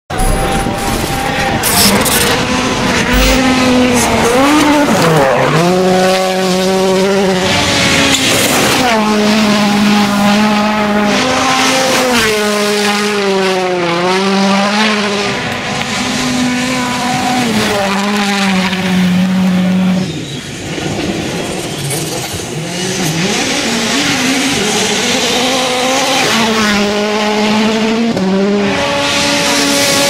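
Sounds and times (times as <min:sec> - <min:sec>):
rush of gravel and tyres: 0:00.1 - 0:26.8
rally car engines revving: 0:00.1 - 0:30.0.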